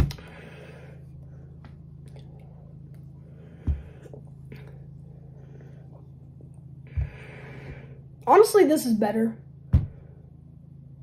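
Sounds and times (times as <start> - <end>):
steady low hum: 0.0 - 11.0
dull thump: 9.7 - 10.0.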